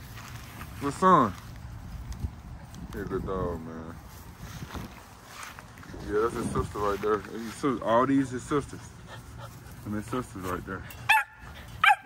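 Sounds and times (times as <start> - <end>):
wind rumbling on microphone: 0.0 - 7.9
faint rustling through grass: 0.0 - 11.8.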